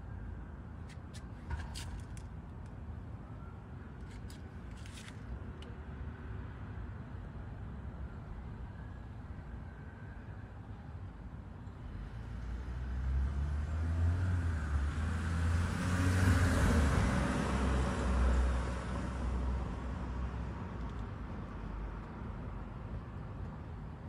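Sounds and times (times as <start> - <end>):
vehicle passing by: 12.4 - 19.4.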